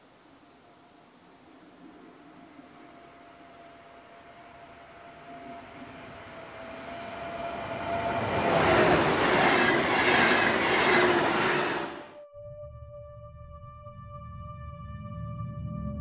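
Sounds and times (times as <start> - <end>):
train passing at speed: 0.6 - 12.2.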